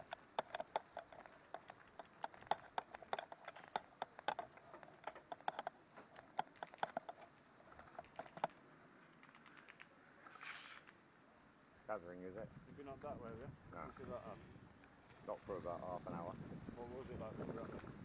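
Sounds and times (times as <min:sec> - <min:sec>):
light footsteps clicking and crunching: 0:00.0 - 0:11.0.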